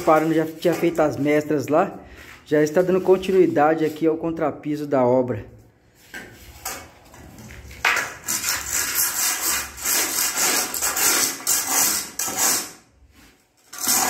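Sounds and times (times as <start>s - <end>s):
screed rule scraping mortar: 7.9s - 14.0s.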